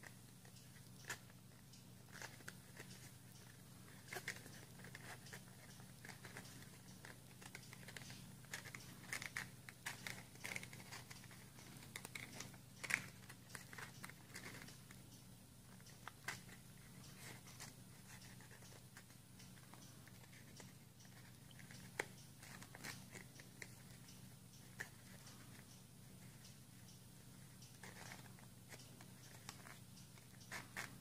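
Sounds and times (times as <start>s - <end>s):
paper crinkling and creasing: 3.9s - 14.9s.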